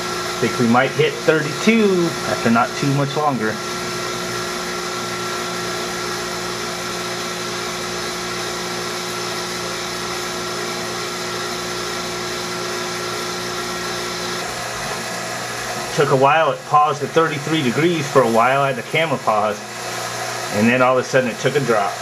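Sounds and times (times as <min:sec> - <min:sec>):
vacuum pump motor hum: 0:00.0 - 0:22.0.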